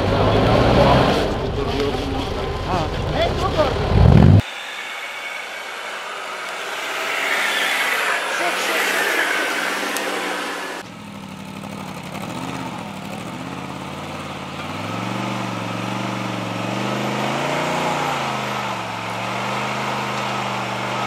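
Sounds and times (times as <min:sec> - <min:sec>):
vehicle engine revving low: 0:00.0 - 0:04.4, 0:10.8 - 0:21.0
loud rushing noise: 0:00.0 - 0:10.8.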